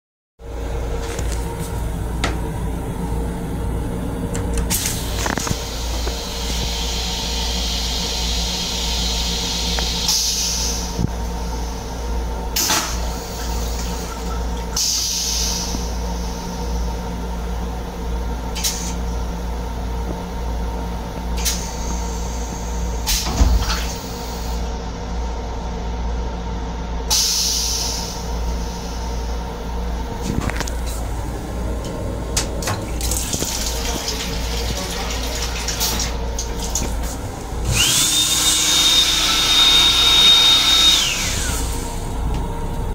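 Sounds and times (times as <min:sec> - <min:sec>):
railcar low hum: 0:00.4 - 0:38.4, 0:39.2 - 0:42.9
toilet flushing: 0:01.9 - 0:16.8, 0:31.0 - 0:42.3.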